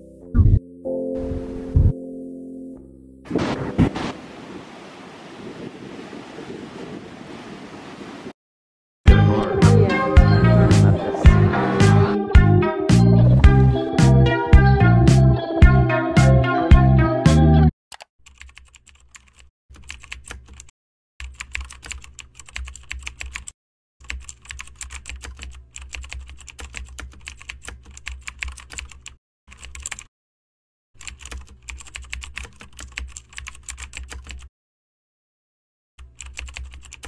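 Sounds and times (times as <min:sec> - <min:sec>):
computer keyboard typing: 0:17.9 - 0:30.1, 0:31.0 - 0:34.5, 0:36.0 - 0:37.0.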